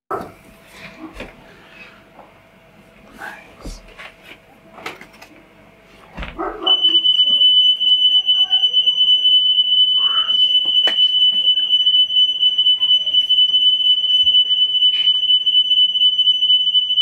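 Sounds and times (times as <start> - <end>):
high-pitched electronic tone: 6.7 - 17.0.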